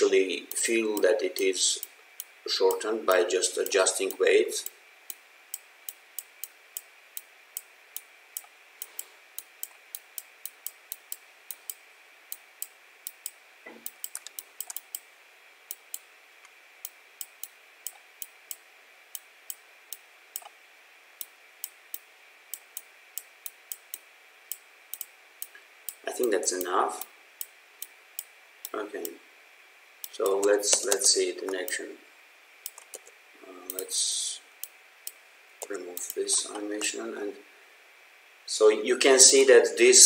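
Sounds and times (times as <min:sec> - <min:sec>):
computer mouse clicking: 0:00.5 - 0:15.0, 0:19.5 - 0:20.5, 0:21.2 - 0:29.1, 0:32.6 - 0:33.8, 0:35.6 - 0:36.9.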